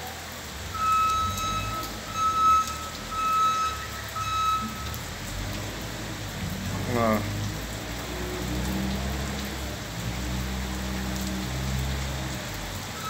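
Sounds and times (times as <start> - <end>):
rain hissing: 0.0 - 13.0
vehicle reversing alarm beeping: 0.7 - 5.3.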